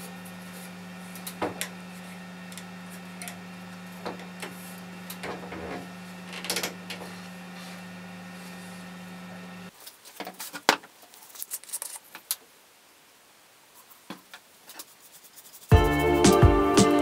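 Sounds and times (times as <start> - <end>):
steady hum: 0.0 - 9.7
music: 15.7 - 17.0.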